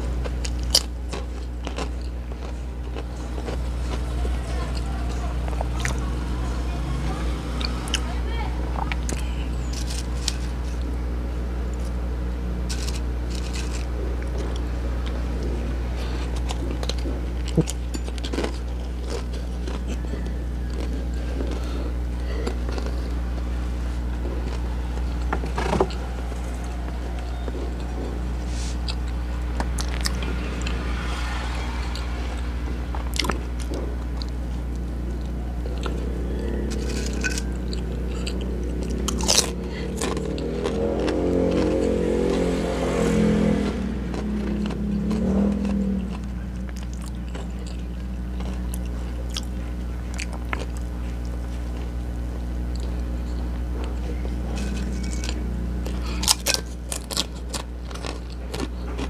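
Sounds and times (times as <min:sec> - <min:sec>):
crunching and chewing: 0:00.0 - 0:59.0
pitched drone: 0:00.0 - 0:59.0
steady low hum: 0:00.0 - 0:59.0
crisp bites: 0:12.7 - 0:14.6.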